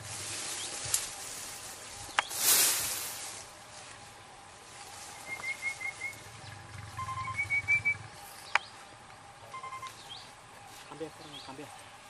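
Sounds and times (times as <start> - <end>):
bird whistling notes: 5.2 - 8.7, 9.5 - 10.3.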